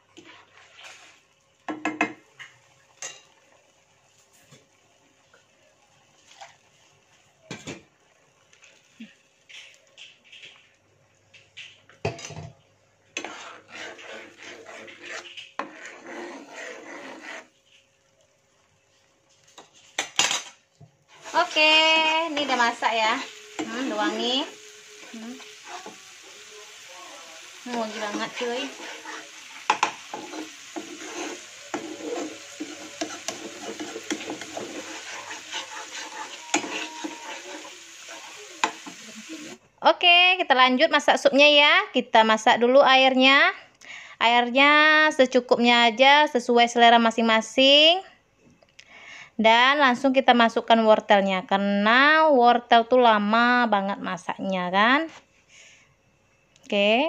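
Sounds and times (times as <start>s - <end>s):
soft sizzle: 0.0s - 47.9s
metal spatula scraping pan: 0.2s - 1.2s, 13.2s - 17.6s, 19.6s - 26.8s, 27.5s - 39.5s
spoon tapping against pan: 1.7s - 2.2s.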